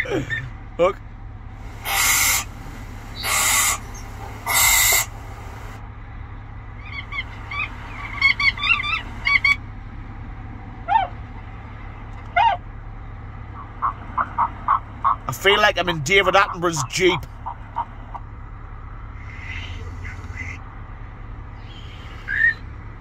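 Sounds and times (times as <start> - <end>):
swan rising calls: 1.6 - 5.8, 6.8 - 9.6, 10.9 - 11.2
owl screeches: 1.8 - 5.2, 6.8 - 9.6, 19.2 - 20.6, 21.6 - 22.6
short high bird calls: 1.8 - 5.2, 6.8 - 9.6, 19.2 - 20.6, 21.6 - 22.7.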